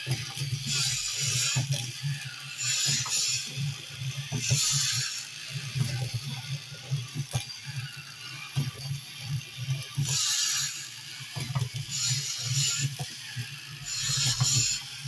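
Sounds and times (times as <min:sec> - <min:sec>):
toy motor humming with gear clicks: 0:00.0 - 0:15.0
rasping hiss: 0:13.9 - 0:14.8.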